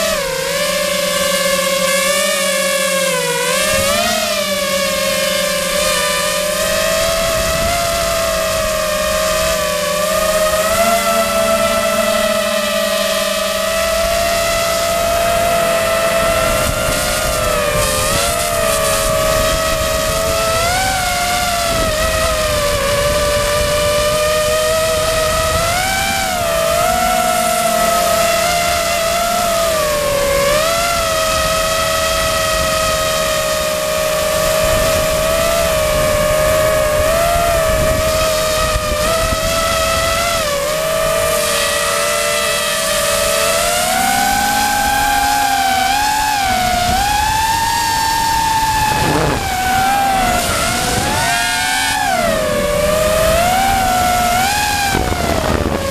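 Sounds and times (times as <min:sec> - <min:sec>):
drone propellers whining: 0:00.0 - 0:55.9.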